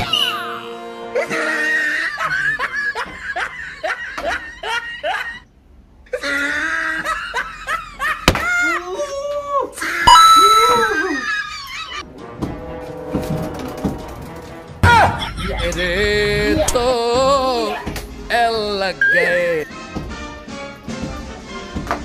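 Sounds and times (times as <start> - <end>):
hearty laughter: 1.1 - 5.5, 6.1 - 8.9, 10.7 - 12.0, 14.9 - 16.8.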